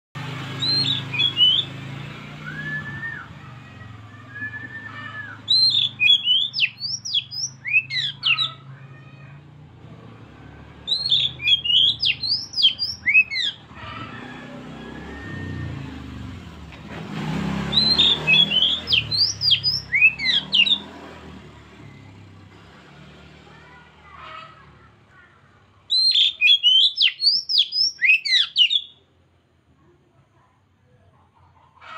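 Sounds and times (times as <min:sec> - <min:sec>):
bird singing sliding whistles: 0:00.6 - 0:01.8, 0:02.4 - 0:08.4, 0:10.9 - 0:13.6, 0:17.7 - 0:20.9, 0:25.9 - 0:29.0.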